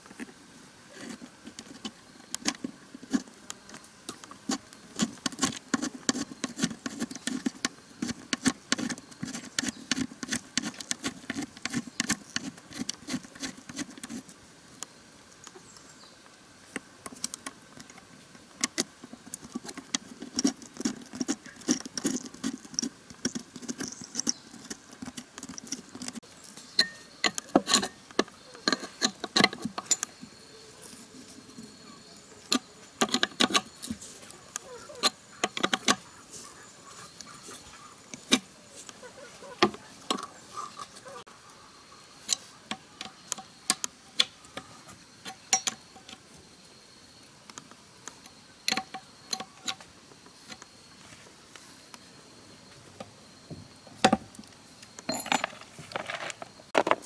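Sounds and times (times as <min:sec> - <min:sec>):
metallic clicks of hand tools: 0:45.2 - 0:46.2.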